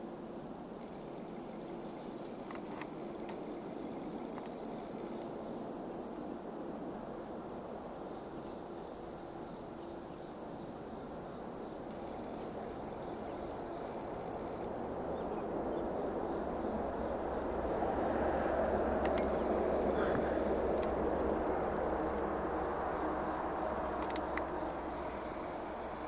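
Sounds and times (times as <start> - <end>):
low rushing noise: 12.8 - 26.0.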